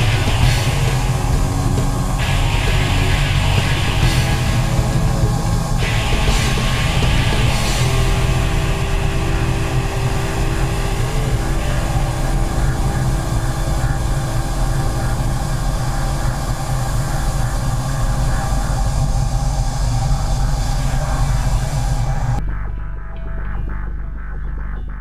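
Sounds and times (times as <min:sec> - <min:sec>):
milling machine cutting steel: 0:00.0 - 0:22.4
music with throbbing beat: 0:00.0 - 0:25.0.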